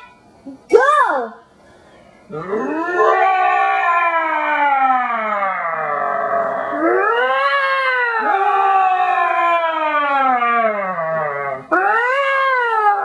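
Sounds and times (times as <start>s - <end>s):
people imitating lion roars: 2.3s - 7.1s.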